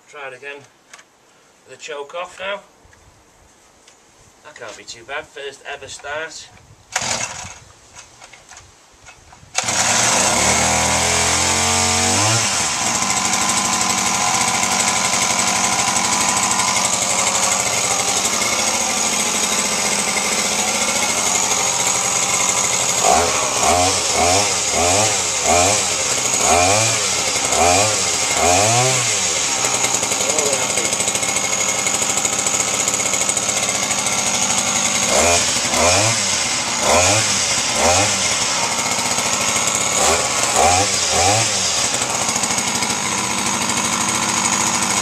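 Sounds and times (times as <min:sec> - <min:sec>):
two-stroke engine revving: 0:07.0 - 0:07.5, 0:09.6 - 0:45.0.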